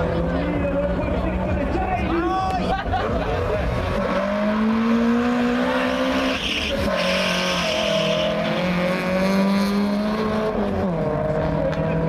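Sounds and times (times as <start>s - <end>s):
car engine revving: 3.2s - 12.0s.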